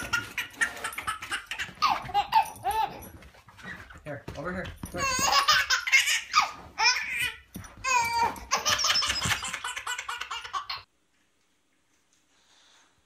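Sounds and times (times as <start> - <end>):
baby laughing: 0.0 - 3.1, 5.0 - 10.9.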